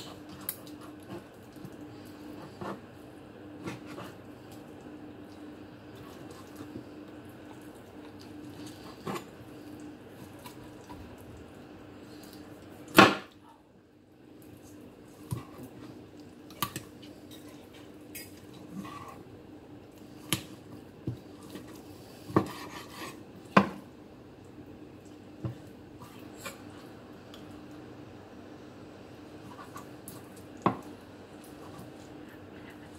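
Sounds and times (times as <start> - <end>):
faint steady hum: 0.0 - 32.9.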